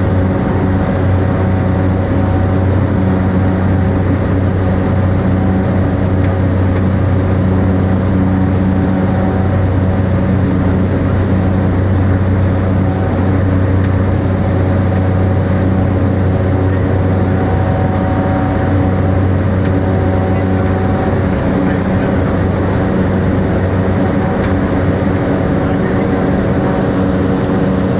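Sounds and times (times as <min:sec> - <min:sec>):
turboprop engine drone: 0:00.0 - 0:27.9.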